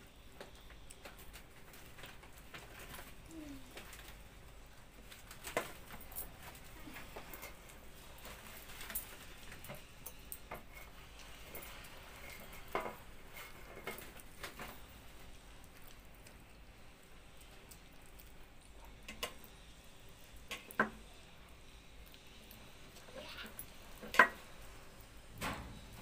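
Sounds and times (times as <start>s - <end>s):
chewing and mouth smacks: 0.2s - 25.2s.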